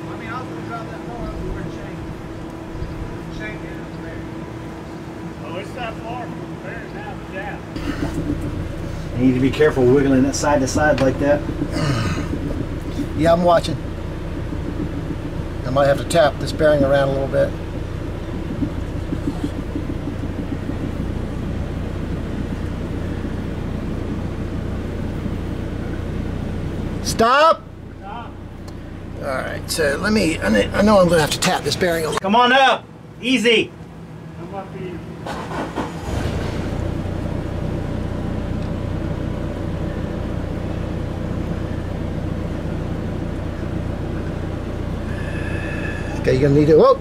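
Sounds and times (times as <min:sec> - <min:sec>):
forklift engine humming: 0:00.0 - 0:47.0.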